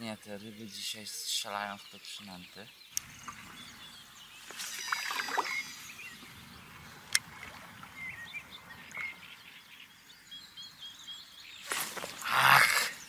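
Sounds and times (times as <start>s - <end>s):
small birds chirping: 0.0s - 13.0s
water lapping around boat: 3.0s - 9.3s.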